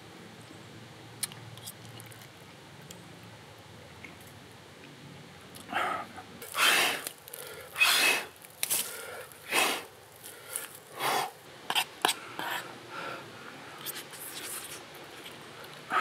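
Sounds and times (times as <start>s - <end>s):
noisy breaths through the mouth: 5.7s - 16.0s.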